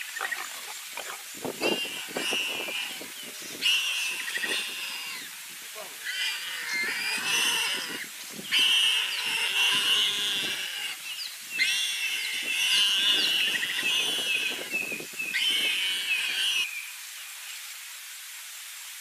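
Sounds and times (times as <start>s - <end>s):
warthog squealing: 0.1s - 5.3s, 6.0s - 11.0s, 11.6s - 14.8s, 15.4s - 16.7s.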